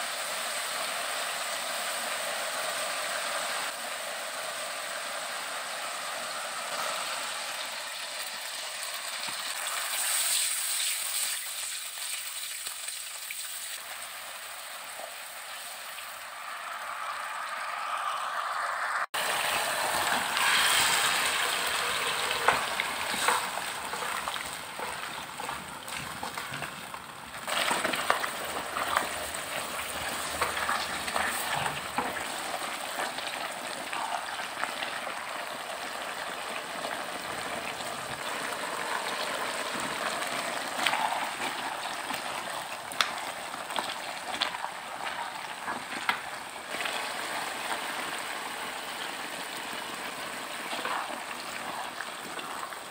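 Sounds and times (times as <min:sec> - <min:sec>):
sauce sizzling and bubbling: 0:00.0 - 0:52.9
spatula scraping a pan: 0:19.4 - 0:32.4.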